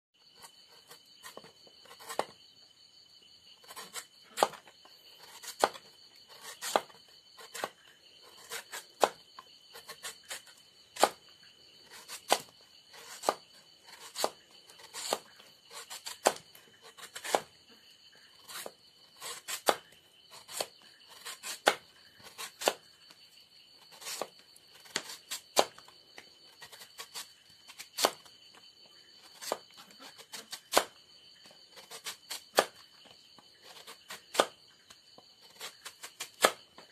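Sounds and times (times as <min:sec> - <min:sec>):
high insect trill: 0:00.2 - 0:36.9
knife slicing on cutting board: 0:11.9 - 0:17.5.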